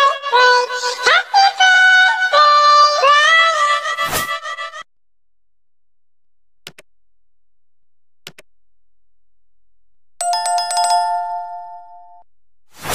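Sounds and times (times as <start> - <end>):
mouse clicks: 6.7 - 6.9, 8.2 - 8.5
notification bell jingle: 10.2 - 12.2.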